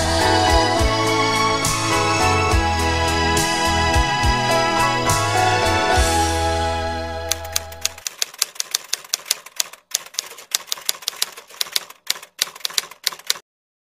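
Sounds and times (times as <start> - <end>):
typewriter keys clicking: 7.3 - 13.4.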